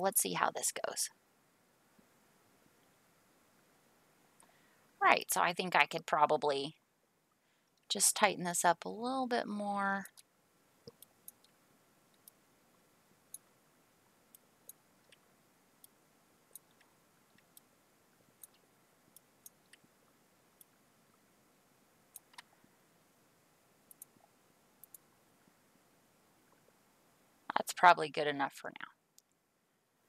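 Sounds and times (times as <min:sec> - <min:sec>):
computer mouse clicking: 0:10.0 - 0:12.4, 0:22.1 - 0:22.5, 0:23.9 - 0:24.2, 0:24.8 - 0:25.0.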